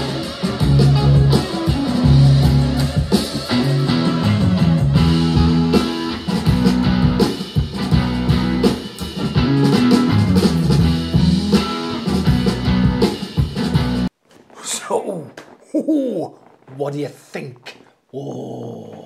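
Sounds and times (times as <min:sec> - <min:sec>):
guitar rock music with drums: 0:00.0 - 0:14.5.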